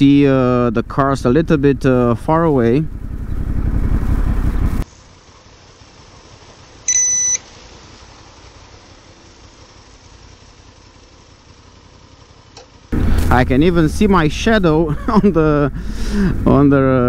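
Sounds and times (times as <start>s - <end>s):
motorcycle engine and wind rumble: 0.0s - 6.9s, 7.5s - 17.0s
faint hiss: 4.8s - 14.8s
high electronic beep: 6.9s - 7.4s.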